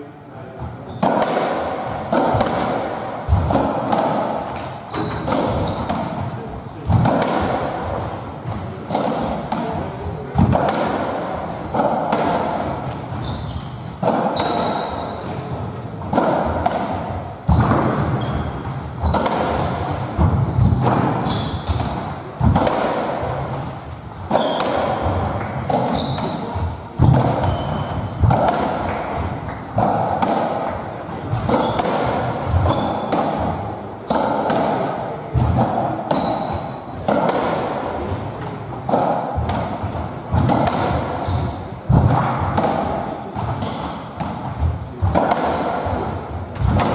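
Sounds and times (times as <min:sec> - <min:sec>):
squash ball hits echoing: 0:00.6 - 0:46.9
shoes squeaking on wooden floor: 0:04.9 - 0:05.9, 0:08.4 - 0:09.5, 0:13.1 - 0:15.5, 0:17.5 - 0:19.3, 0:20.6 - 0:21.9, 0:24.1 - 0:25.1, 0:25.9 - 0:26.6, 0:27.2 - 0:29.8, 0:32.5 - 0:33.1, 0:36.1 - 0:36.9, 0:40.2 - 0:42.6, 0:45.4 - 0:46.1.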